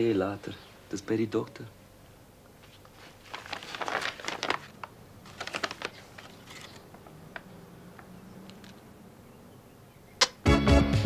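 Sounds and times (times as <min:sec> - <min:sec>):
paper envelope crackling and rustling: 0:02.6 - 0:07.5.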